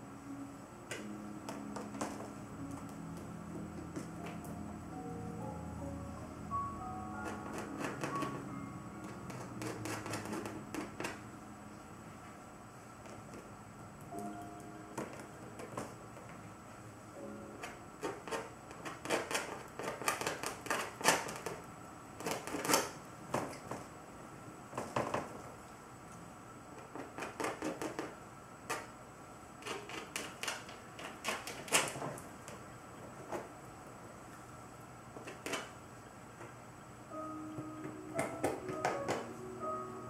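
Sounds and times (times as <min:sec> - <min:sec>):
palette knife scraping paint: 0:07.2 - 0:08.4, 0:09.2 - 0:11.2, 0:18.0 - 0:21.5.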